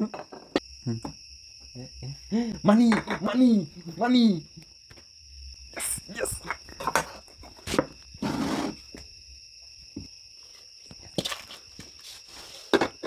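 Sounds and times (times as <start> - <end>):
clay pots knocking: 2.6 - 3.4
clay pot scraping on table: 7.0 - 8.8.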